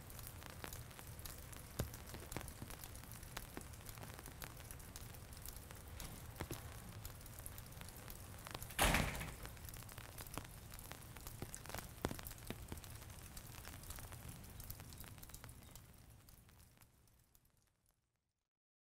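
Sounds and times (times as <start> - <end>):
faint crackly ticks: 0.0 - 8.8, 9.4 - 17.9
door shutting: 8.7 - 9.5.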